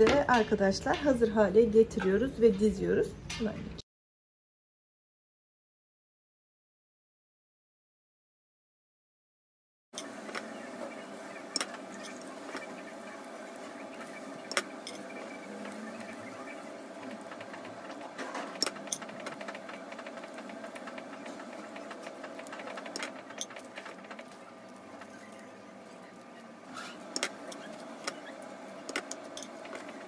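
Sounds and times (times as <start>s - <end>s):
steady mechanical hum: 0.0s - 3.8s, 10.0s - 30.0s.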